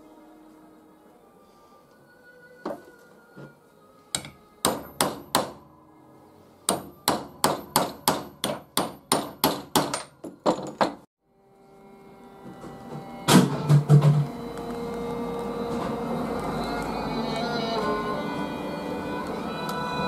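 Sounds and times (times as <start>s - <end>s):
background music: 0.0s - 20.0s
hammer striking metal punch: 4.2s - 5.6s, 6.7s - 11.0s, 13.3s - 14.3s.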